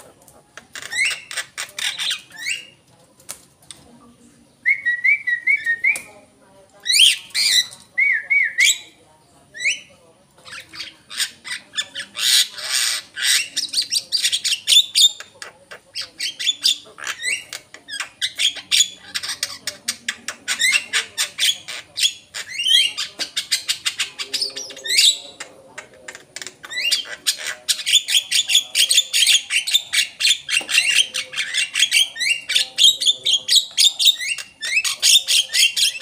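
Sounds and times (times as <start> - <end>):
bird whistles and chattering: 0.7 - 2.8, 4.6 - 6.1, 6.8 - 9.0, 9.6 - 36.0.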